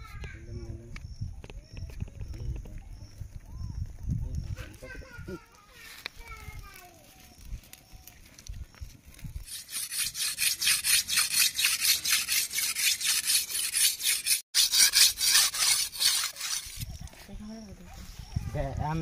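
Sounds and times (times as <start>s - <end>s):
blade grating on rock: 9.4s - 17.0s.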